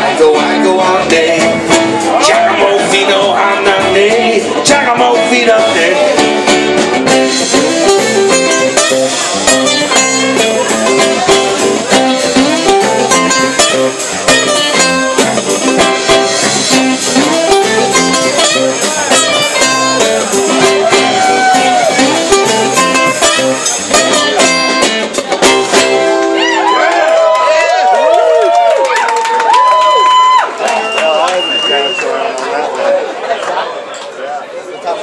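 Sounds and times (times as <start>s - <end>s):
rock band playing: 0.0s - 26.8s.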